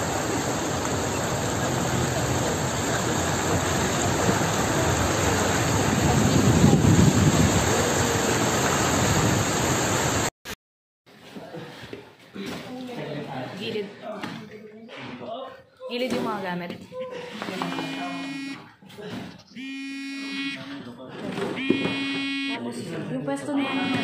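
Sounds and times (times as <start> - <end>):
floodwater rushing and splashing: 0.0 - 10.3.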